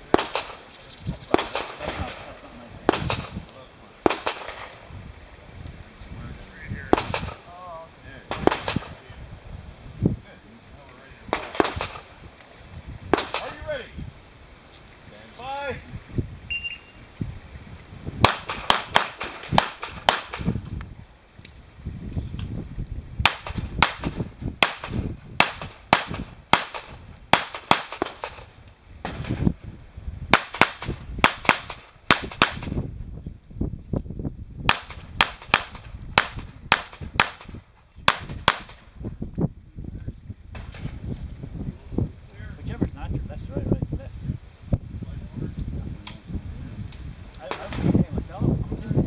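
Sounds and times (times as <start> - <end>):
pistol shots: 0.1 - 0.6, 1.3 - 2.2, 2.8 - 3.4, 4.0 - 4.8, 6.9 - 7.4, 8.3 - 9.0, 11.3 - 12.1, 13.1 - 13.6, 18.2 - 20.6, 23.2 - 29.4, 30.3 - 32.8, 34.7 - 38.8
shot timer beep: 16.5 - 17.0.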